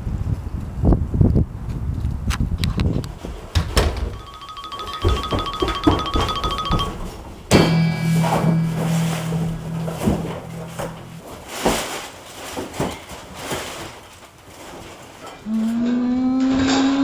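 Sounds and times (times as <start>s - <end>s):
held music chord: 7.5s - 11.6s.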